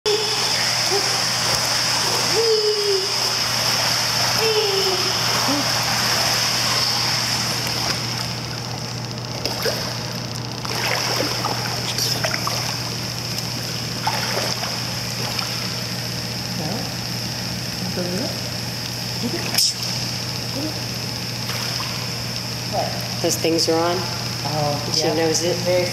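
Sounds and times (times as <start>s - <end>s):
pool water sloshing and splashing: 0.1s - 17.7s, 20.8s - 23.2s.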